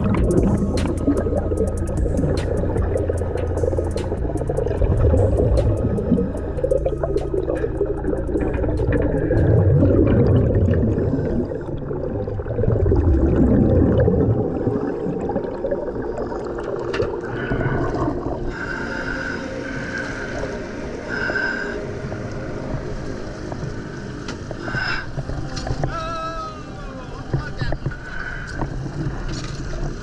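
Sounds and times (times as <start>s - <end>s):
diver's exhaust bubbles gurgling: 0.0s - 18.6s.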